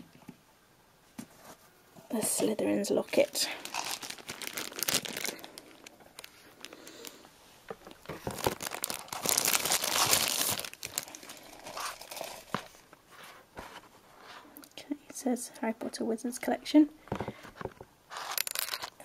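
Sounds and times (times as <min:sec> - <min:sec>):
packaging crinkling and rustling: 0:02.2 - 0:13.0.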